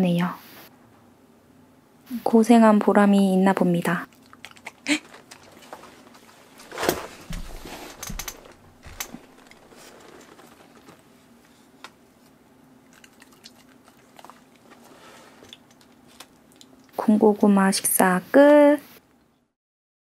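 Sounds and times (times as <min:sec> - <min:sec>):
faint steady hum: 0:00.0 - 0:19.5
dog chewing food: 0:04.1 - 0:06.6, 0:12.8 - 0:16.8.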